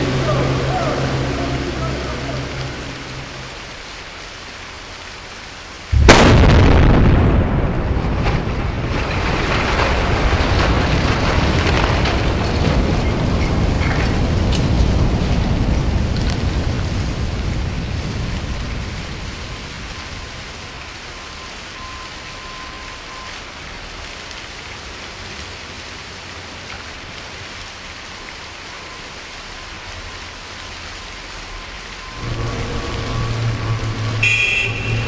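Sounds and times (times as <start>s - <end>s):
low rumble: 5.9s - 9.3s, 32.0s - 35.0s.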